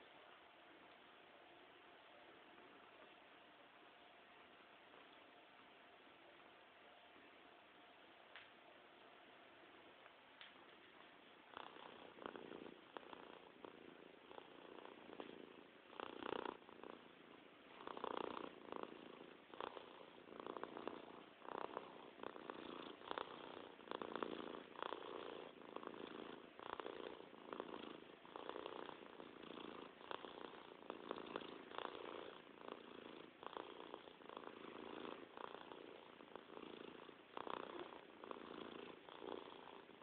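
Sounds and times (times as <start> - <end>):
cat purring: 9.6 - 40.0.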